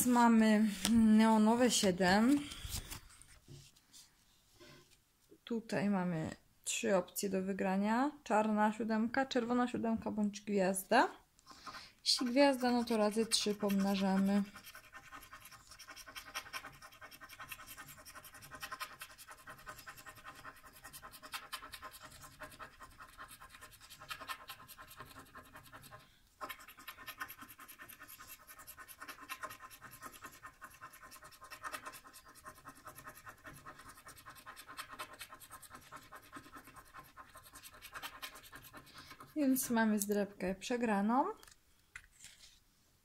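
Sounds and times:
coin scraping scratch card: 12.2s - 39.3s.

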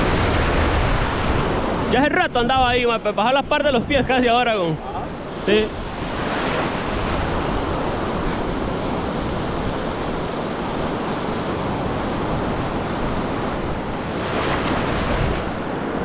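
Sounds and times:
ocean surf breaking: 0.0s - 16.0s.

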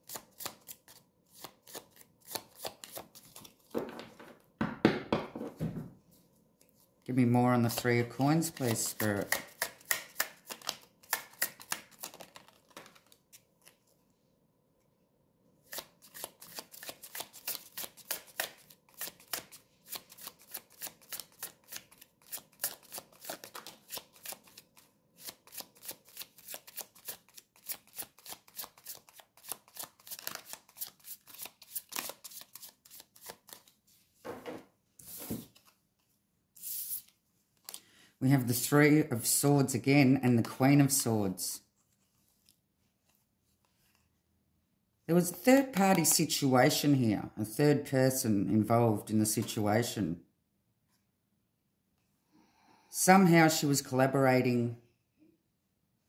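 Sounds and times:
cards being shuffled: 0.0s - 4.2s, 7.6s - 14.0s, 15.6s - 33.8s, 35.0s - 37.8s.

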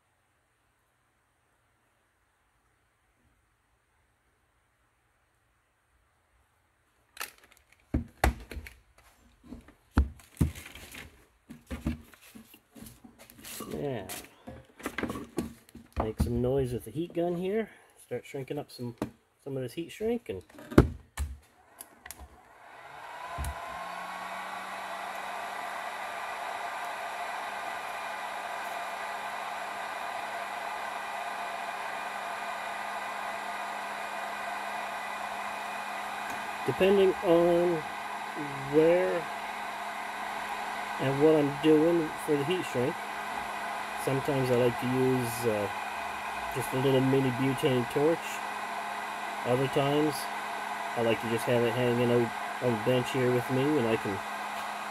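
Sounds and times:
low motor hum: 21.7s - 54.9s
heat gun blowing air: 21.8s - 54.9s.

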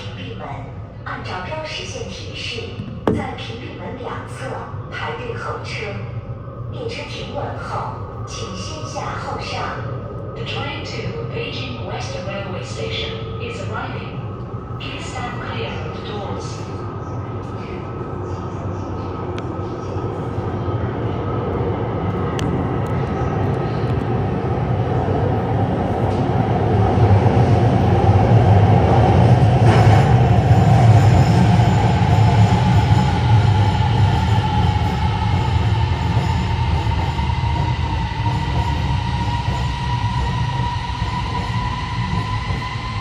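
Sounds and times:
subway train rumble: 0.0s - 43.0s
train whine rising in pitch: 29.1s - 43.0s.

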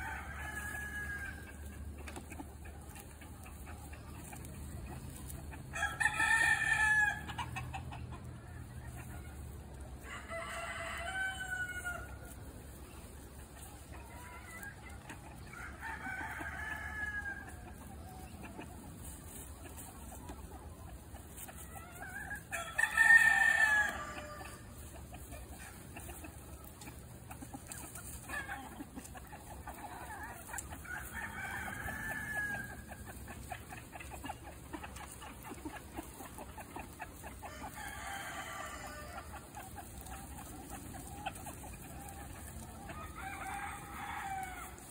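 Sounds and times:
chickens calling: 0.0s - 44.9s.

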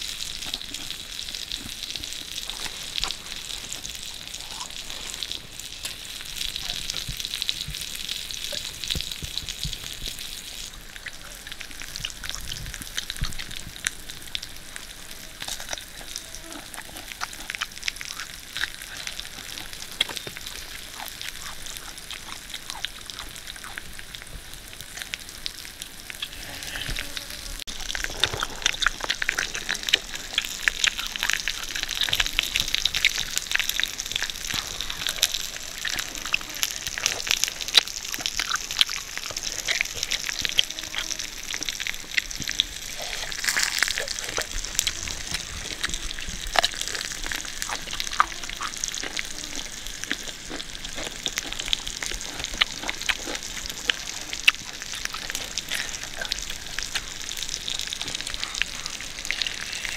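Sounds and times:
chewing and mouth smacking: 0.0s - 24.2s, 26.1s - 59.9s
meat sizzling on hot stone: 0.0s - 59.9s.

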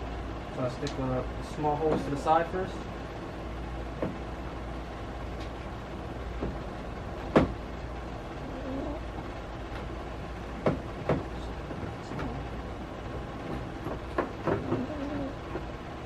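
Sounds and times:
steady low hum: 0.0s - 16.0s
plastic knocks and clicks: 13.5s - 14.9s.

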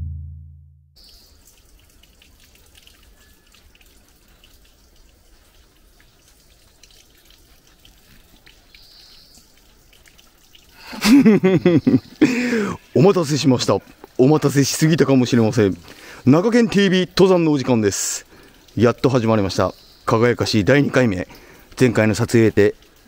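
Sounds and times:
deep drum hit: 0.0s - 0.8s
steady hiss: 10.7s - 23.0s.

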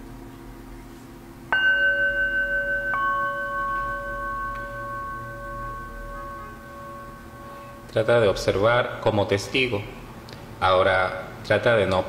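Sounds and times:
singing bowls struck with mallet: 1.5s - 8.9s.

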